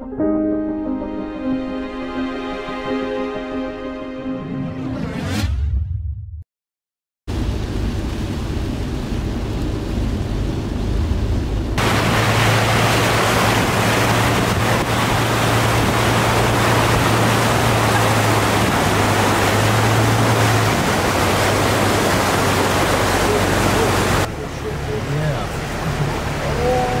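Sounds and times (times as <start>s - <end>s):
low truck engine hum: 7.3s - 27.0s
tyres splashing through water: 11.8s - 27.0s.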